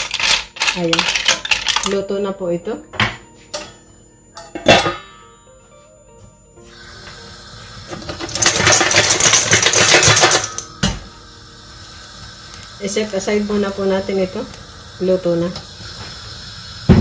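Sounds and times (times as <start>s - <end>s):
pot rattling and scraping: 0.0s - 2.0s, 7.9s - 10.6s
metal lid clanking onto pot: 4.4s - 5.1s
pot set down with clunk: 4.4s - 5.1s.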